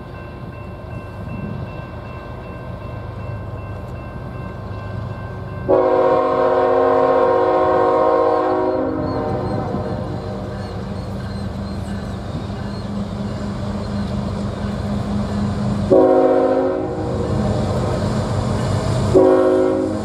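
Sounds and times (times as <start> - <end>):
diesel locomotive engine rumble: 0.0 - 20.0
locomotive air horn chord: 5.7 - 10.5, 15.9 - 17.2, 19.1 - 20.0.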